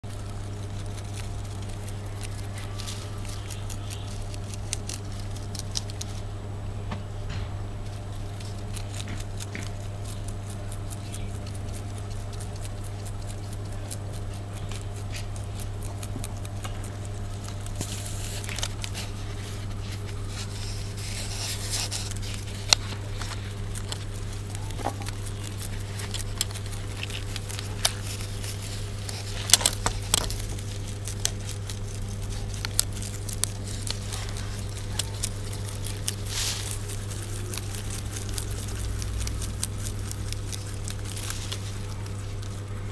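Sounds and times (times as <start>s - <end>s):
rabbits chewing: 0.0s - 42.9s
steady low hum: 0.0s - 42.9s.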